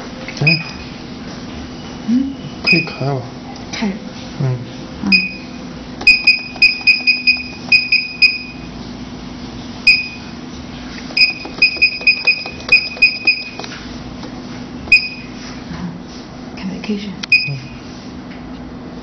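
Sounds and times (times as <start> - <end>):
short high touchscreen beeps: 2.6 - 3.0, 6.1 - 8.6, 9.9 - 10.3, 11.2 - 13.6, 14.9 - 15.3, 17.3 - 17.7.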